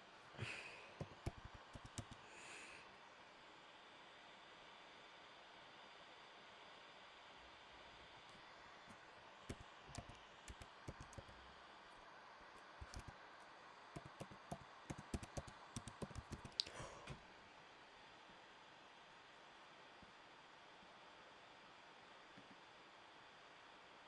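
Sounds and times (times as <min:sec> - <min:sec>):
faint room hiss: 0:00.0 - 0:24.0
typing on computer keyboard: 0:01.0 - 0:02.2, 0:09.5 - 0:11.4, 0:12.8 - 0:13.2, 0:13.9 - 0:16.8.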